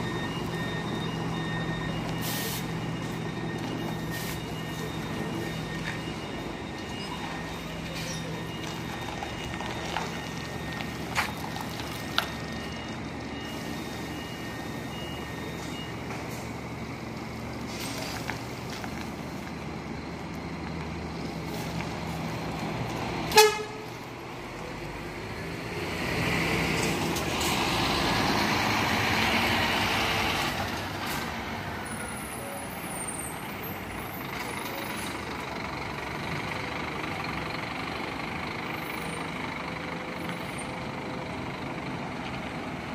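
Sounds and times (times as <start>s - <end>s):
diesel engines running: 0.0s - 42.9s
horn toot: 23.3s - 23.8s.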